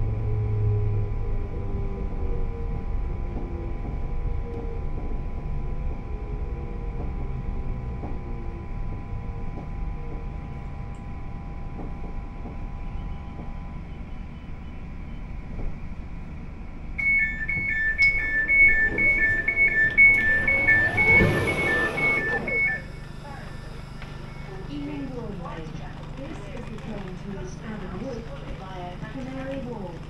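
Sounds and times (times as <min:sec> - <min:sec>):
faint train whine: 0:00.0 - 0:30.0
train running rumble: 0:00.0 - 0:30.0
two-tone electronic door beeping: 0:17.0 - 0:24.6.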